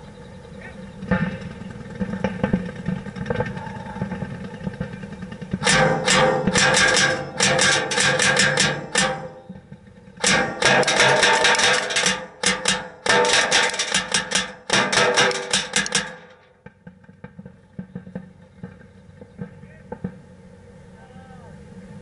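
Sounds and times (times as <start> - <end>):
airsoft bbs hitting plexiglass: 10.2 - 16.7.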